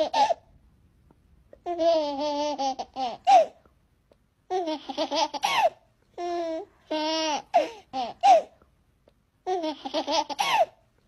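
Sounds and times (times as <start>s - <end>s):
baby babbling and laughing: 1.6s - 3.6s, 4.5s - 8.6s, 9.4s - 10.8s.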